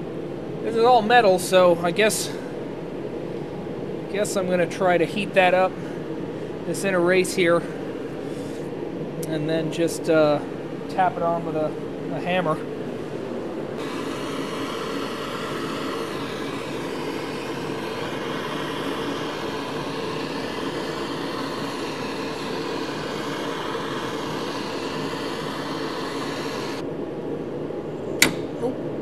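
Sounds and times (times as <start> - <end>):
gas torch flame hissing: 13.7 - 26.8.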